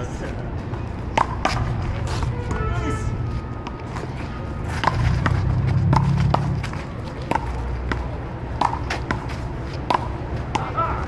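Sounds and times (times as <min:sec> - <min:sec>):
paddles hitting ball: 0:04.7 - 0:11.0.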